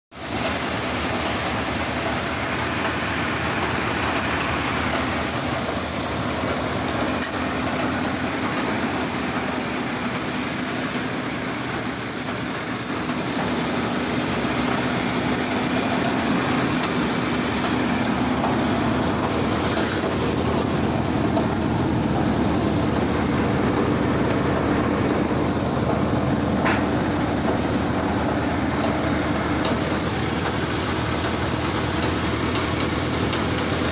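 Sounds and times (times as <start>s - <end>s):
tractor engine: 0.1s - 33.9s
threshing drum spinning: 0.2s - 33.9s.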